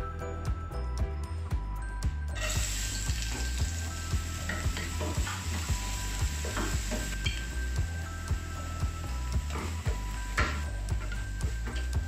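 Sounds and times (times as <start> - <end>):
background music with steady beat: 0.0 - 12.0
onion sizzling in oil: 2.4 - 12.0.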